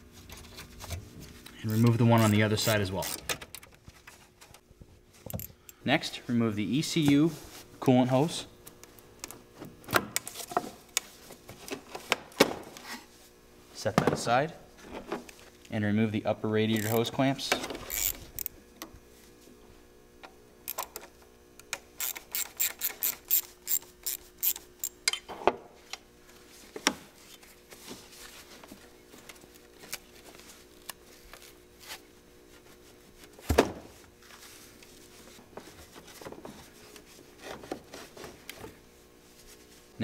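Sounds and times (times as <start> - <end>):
ratchet clicking: 16.8 - 17.0, 17.9 - 18.5, 22.0 - 25.0.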